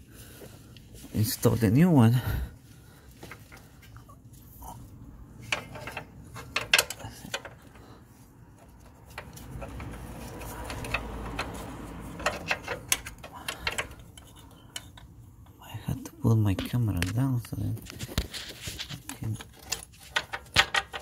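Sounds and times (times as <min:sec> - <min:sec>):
rubbing and rustling: 0:02.6 - 0:14.8, 0:16.6 - 0:21.0.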